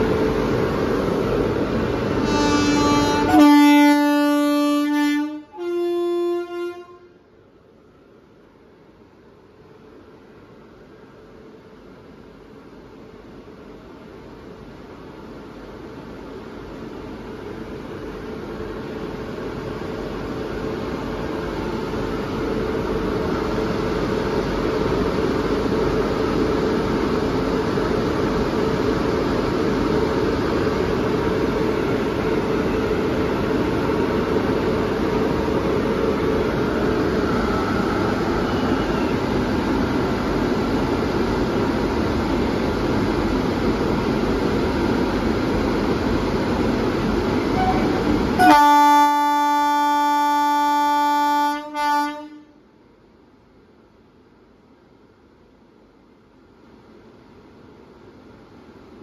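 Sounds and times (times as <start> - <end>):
electric locomotive roar: 0.0 - 7.5, 9.2 - 52.6
train rumbling: 0.0 - 59.0
locomotive horn blasts: 2.2 - 7.2, 47.5 - 52.6.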